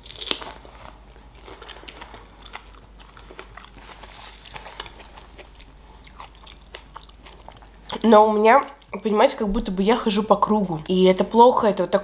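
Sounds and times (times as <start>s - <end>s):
wet chewing mouth clicks: 1.5s - 9.0s.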